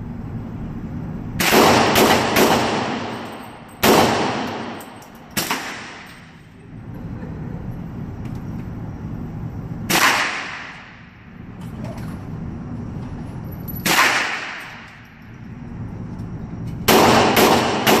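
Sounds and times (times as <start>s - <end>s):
steady low hum: 0.0s - 18.0s
pistol shots in indoor range: 1.3s - 6.6s, 9.8s - 11.5s, 13.6s - 18.0s.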